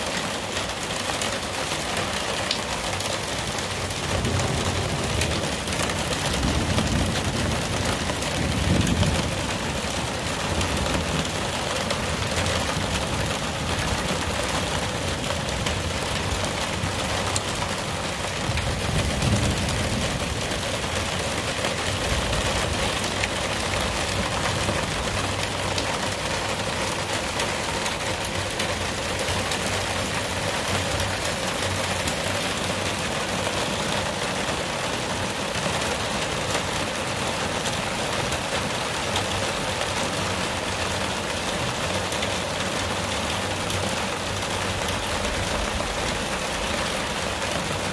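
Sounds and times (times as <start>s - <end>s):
heavy rain pouring: 0.0s - 47.9s
thunder rumbling: 3.5s - 32.8s.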